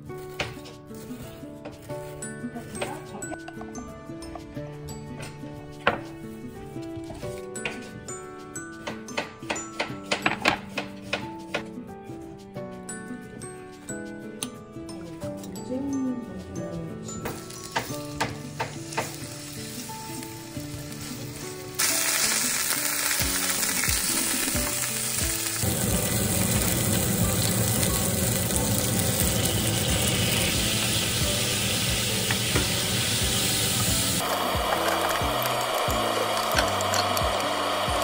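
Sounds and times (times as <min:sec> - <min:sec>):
soft background music: 0:00.0 - 0:38.0
meat sizzling in a pan: 0:17.4 - 0:38.0
sauce poured into hot pan: 0:21.8 - 0:38.0.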